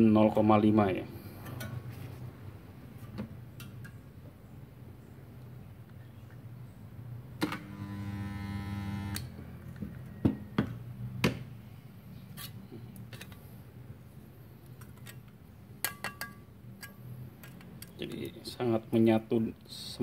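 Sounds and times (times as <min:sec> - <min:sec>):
spot welder transformer buzzing: 0:07.4 - 0:09.3.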